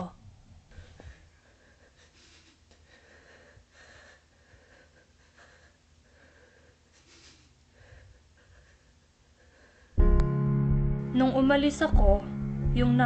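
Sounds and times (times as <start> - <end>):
faint irregular breathing: 0.7 - 10.1.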